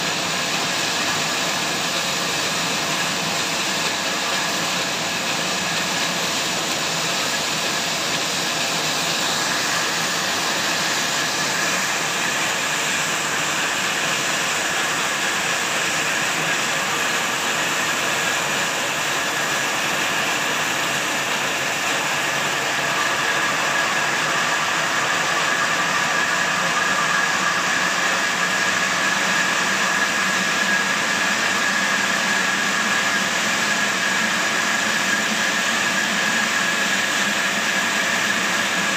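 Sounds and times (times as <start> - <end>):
high saw whine: 0.0 - 38.9.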